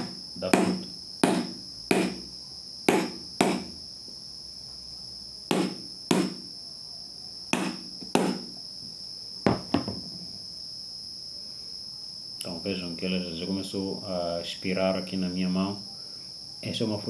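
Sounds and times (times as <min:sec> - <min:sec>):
stone tapping hard fruit shell: 0:00.0 - 0:02.3, 0:02.9 - 0:03.7, 0:05.5 - 0:06.4, 0:07.6 - 0:08.5.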